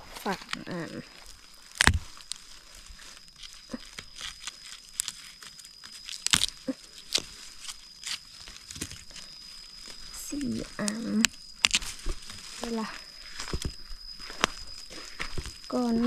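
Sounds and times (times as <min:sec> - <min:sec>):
dry leaves and twigs crackling: 0:00.0 - 0:16.0
faint high tone: 0:15.7 - 0:16.0.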